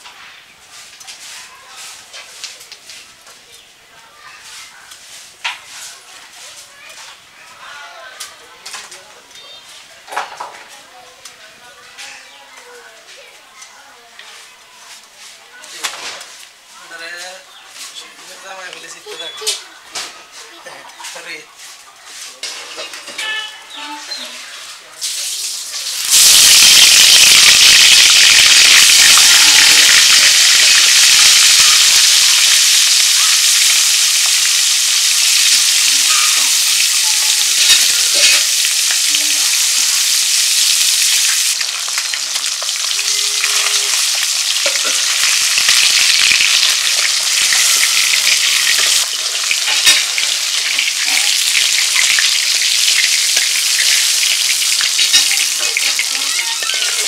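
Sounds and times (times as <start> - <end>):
fish sizzling in hot oil: 25.0 - 57.0.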